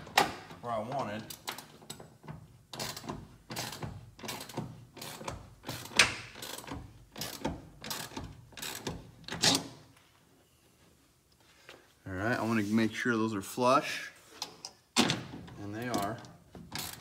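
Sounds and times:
ratchet wrench clicking: 2.8s - 9.0s, 16.8s - 17.0s.

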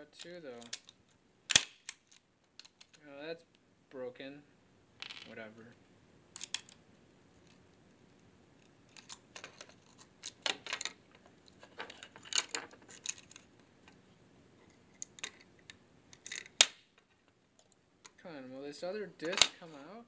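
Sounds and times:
small metal parts clicking: 0.6s - 3.0s, 6.4s - 6.8s, 8.9s - 13.5s, 15.0s - 16.6s.

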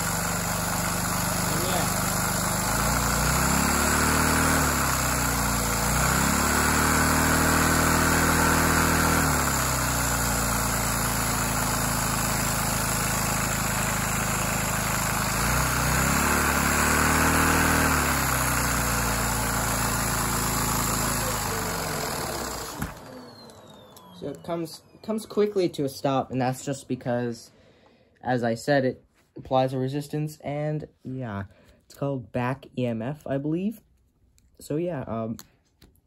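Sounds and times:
small vacuum engine revving: 0.0s - 25.7s.

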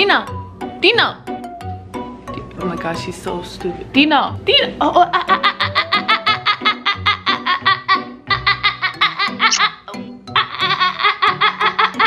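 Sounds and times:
background music: 0.0s - 12.0s
woman laughing hard: 5.0s - 12.0s.

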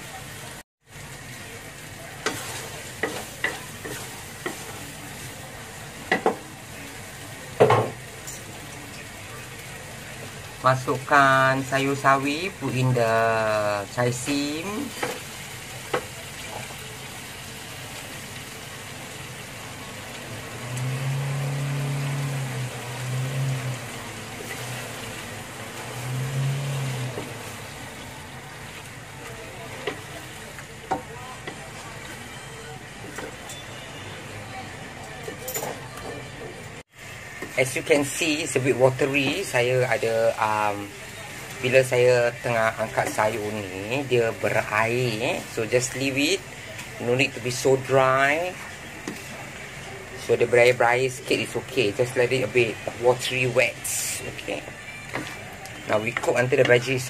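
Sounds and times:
steady sizzle: 0.0s - 57.0s
spatula scraping a wok: 2.2s - 4.8s.

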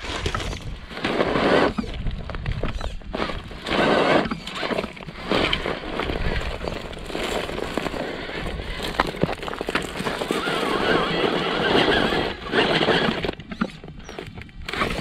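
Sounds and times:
dirt and gravel crunching: 0.0s - 15.0s
tyres scrabbling on dirt: 0.0s - 15.0s
stones knocking and clicking: 4.3s - 10.8s.

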